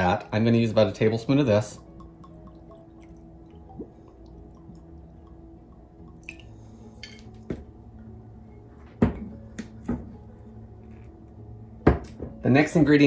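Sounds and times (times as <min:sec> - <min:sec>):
glass bottle knocking on countertop: 0:09.0 - 0:09.3, 0:11.8 - 0:12.4.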